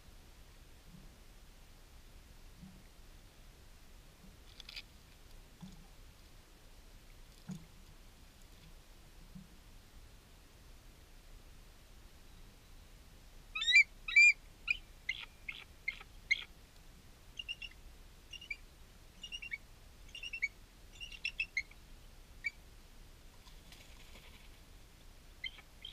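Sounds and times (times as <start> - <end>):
faint hiss: 0.0 - 25.9
bird chirping: 13.6 - 16.5, 17.4 - 18.6, 19.2 - 21.8, 25.4 - 25.9.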